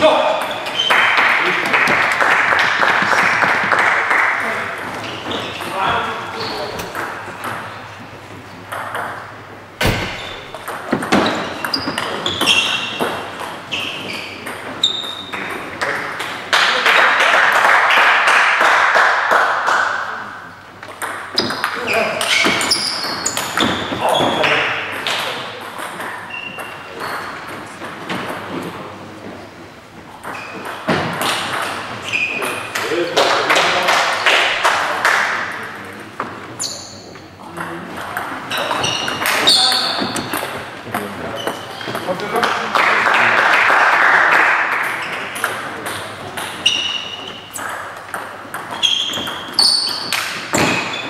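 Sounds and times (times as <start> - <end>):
table tennis balls clicking: 8.6 - 9.6, 10.4 - 16.7, 20.8 - 28.7, 44.6 - 51.0.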